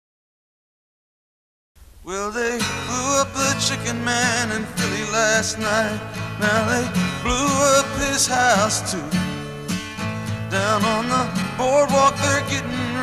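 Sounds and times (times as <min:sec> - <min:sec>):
person singing with vibrato: 0:02.0 - 0:09.8, 0:10.4 - 0:13.0
guitar and bass: 0:02.7 - 0:13.0.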